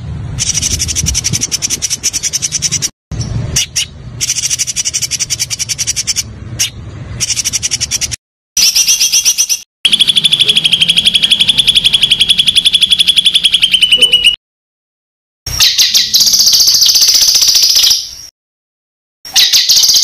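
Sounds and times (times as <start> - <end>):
songbird trills: 19.3 - 20.0.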